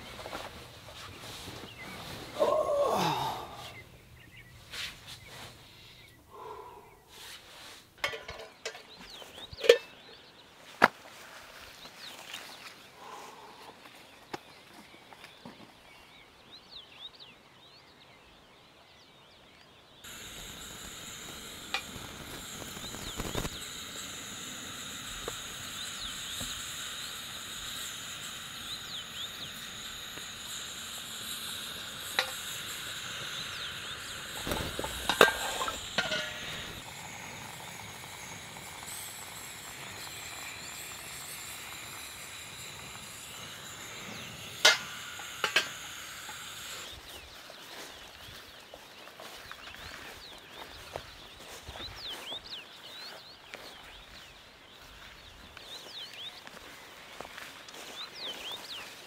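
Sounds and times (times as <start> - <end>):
gas stove hissing: 0.0 - 9.8, 20.0 - 47.3
metal pots clinking: 8.0 - 10.0, 30.2 - 42.8, 44.6 - 45.9.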